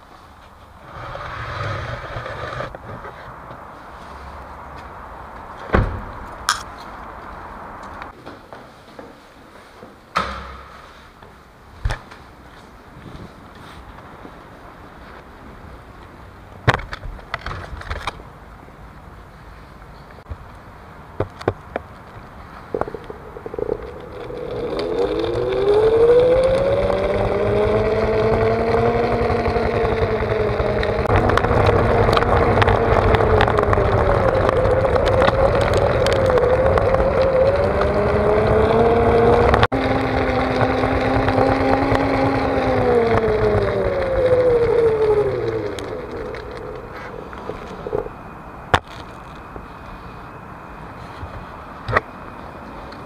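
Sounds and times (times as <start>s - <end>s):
electric motor whining: 22.7s - 48.2s.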